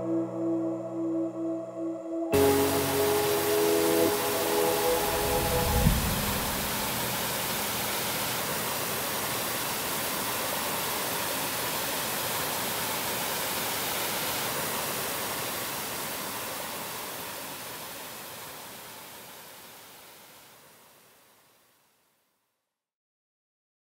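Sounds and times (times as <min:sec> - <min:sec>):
waterfall roaring: 0:02.4 - 0:20.5.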